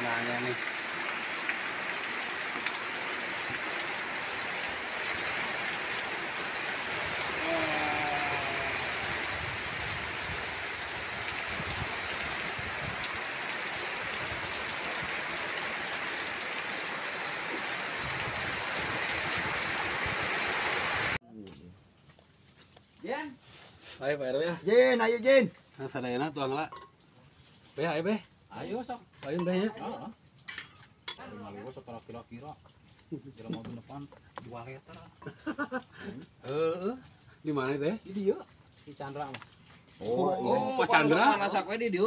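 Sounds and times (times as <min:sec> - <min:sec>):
heavy rain on roofs and foliage: 0:00.0 - 0:21.2, 0:34.6 - 0:42.0.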